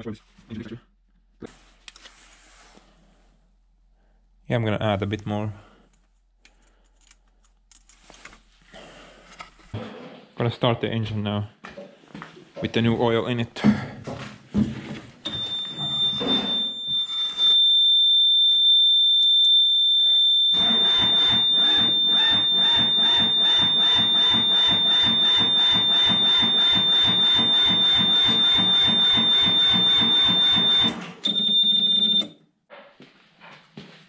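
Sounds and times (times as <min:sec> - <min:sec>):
high-pitched warning buzzer: 0:15.3 - 0:32.3.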